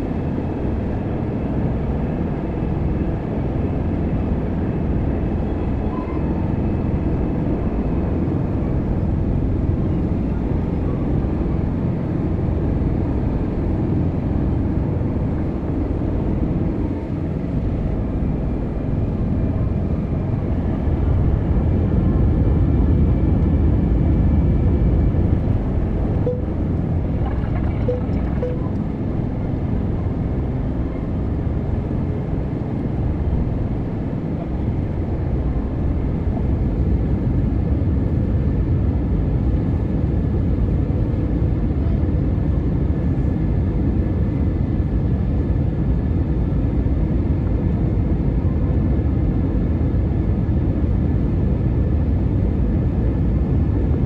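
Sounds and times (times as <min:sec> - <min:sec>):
aircraft engines and rushing air: 0:00.0 - 0:54.0
faint steady tones: 0:25.5 - 0:29.3.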